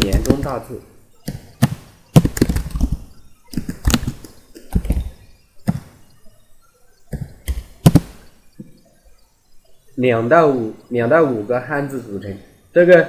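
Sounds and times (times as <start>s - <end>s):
computer keyboard typing: 0.0s - 5.8s.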